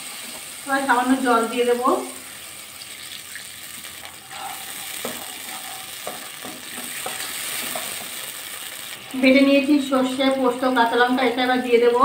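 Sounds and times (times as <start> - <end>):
tomatoes sizzling in oil: 0.0 - 12.0
spatula knocking against pan: 6.0 - 8.1.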